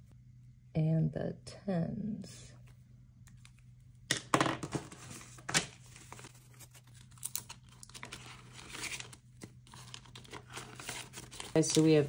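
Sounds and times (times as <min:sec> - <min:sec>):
paper banknotes rustling: 0:04.7 - 0:12.0.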